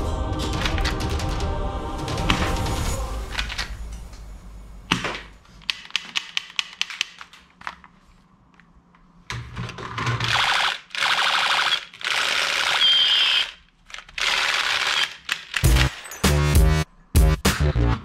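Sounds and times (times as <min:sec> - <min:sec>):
plastic toy gun clicks: 0:05.6 - 0:07.5, 0:11.6 - 0:15.7
electronic toy gun rapid-fire: 0:10.3 - 0:15.9.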